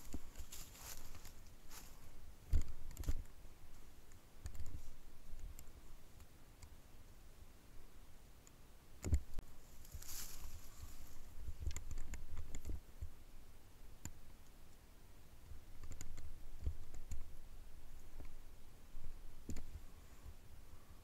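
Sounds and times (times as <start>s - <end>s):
small clicks and soft knocks: 2.5s - 6.8s, 8.4s - 9.4s, 11.1s - 13.2s, 15.4s - 17.3s, 19.4s - 19.8s
brief rustle: 9.8s - 12.7s.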